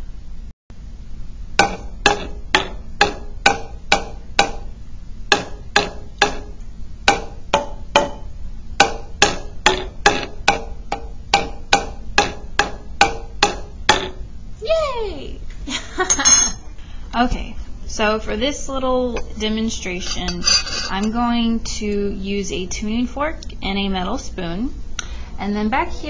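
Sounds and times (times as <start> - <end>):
spoon tapping glass bottles: 16.1 - 16.6.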